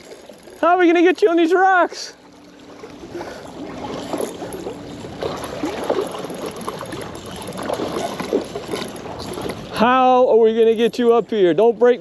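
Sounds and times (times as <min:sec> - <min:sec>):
water splashing against rocks: 0:02.7 - 0:09.8.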